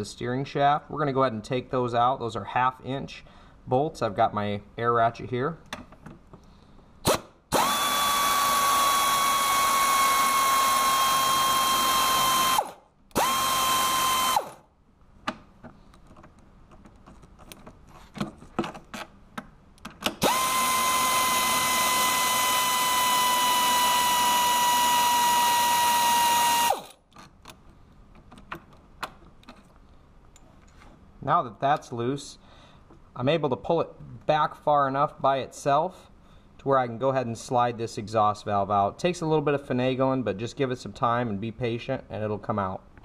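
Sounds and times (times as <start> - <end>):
air ratchet whining: 7.1 - 14.6, 20.2 - 27.0.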